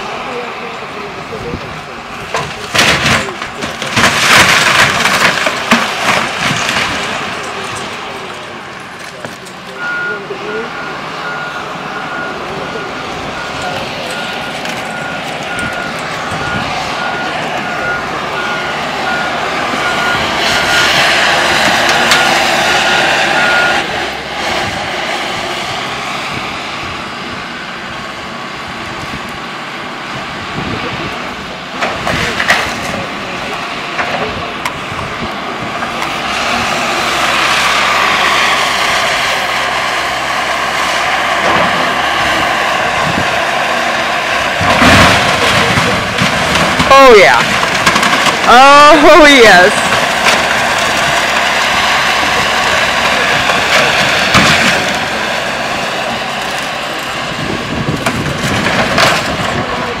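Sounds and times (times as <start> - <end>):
excavator diesel engine: 0.0 - 60.0
boat cabin crunching and splintering: 2.3 - 7.8.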